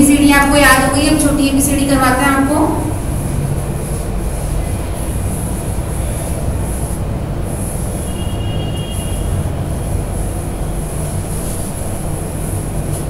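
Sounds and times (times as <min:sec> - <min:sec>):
duster rubbing blackboard: 0:00.0 - 0:13.0.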